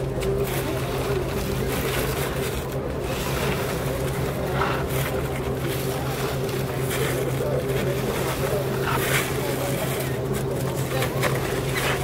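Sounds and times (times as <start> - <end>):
low electronic drone: 0.0 - 12.0.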